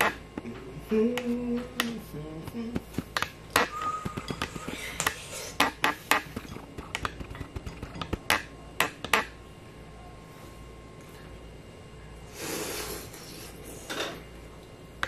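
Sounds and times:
person humming: 0.0 - 3.0, 3.6 - 5.7.

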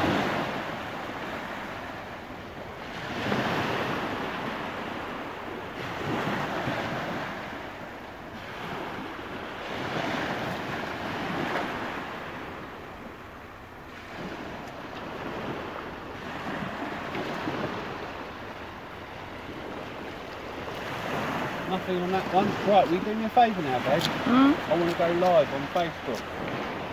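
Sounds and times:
small waves breaking on beach: 0.0 - 26.9
wind on microphone: 13.9 - 23.2.

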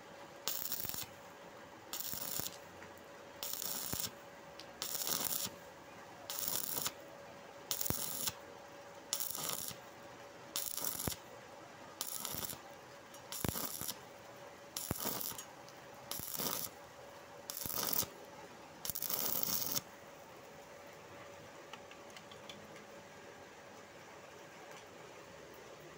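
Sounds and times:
faint steady hum: 0.0 - 25.9
welding arc crackling: 0.4 - 1.2, 1.9 - 2.6, 3.4 - 5.6, 6.3 - 7.0, 7.7 - 8.4, 9.1 - 9.8, 10.6 - 11.2, 12.0 - 12.6, 13.2 - 14.0, 14.8 - 15.5, 16.1 - 16.8, 17.5 - 18.1, 18.8 - 19.8.

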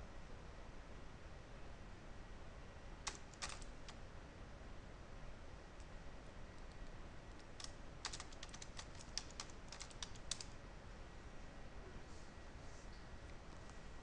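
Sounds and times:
typing on computer keyboard: 3.0 - 4.0, 6.6 - 10.6.

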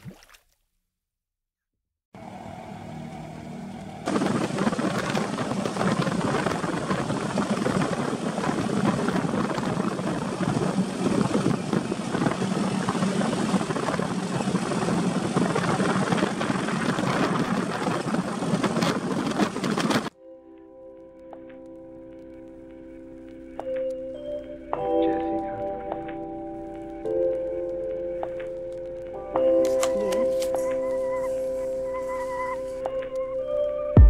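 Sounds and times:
buggy engine running: 2.2 - 20.1.

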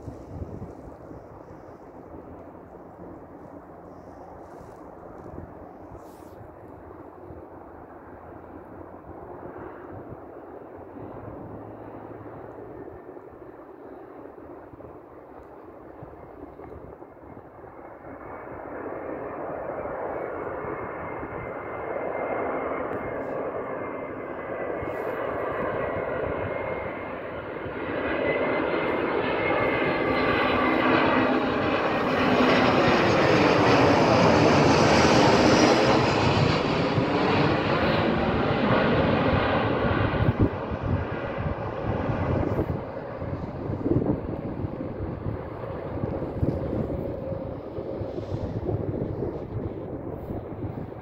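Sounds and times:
jet airliner passing overhead: 0.0 - 51.0
high jet whine: 22.8 - 51.0.

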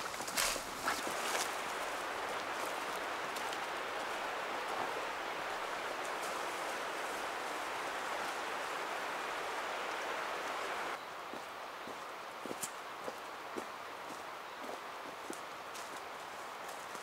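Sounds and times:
footstep-like crunches: 0.0 - 3.7
rushing outdoor ambience: 0.0 - 17.0.

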